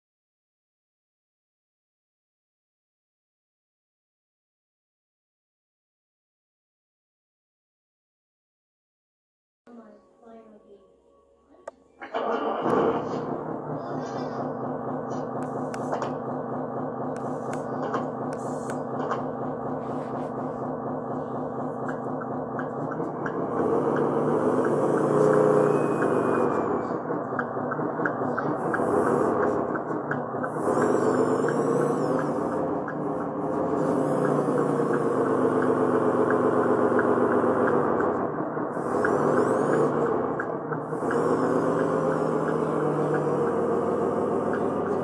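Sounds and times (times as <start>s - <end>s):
model grader diesel engine drone: 12.0s - 45.0s.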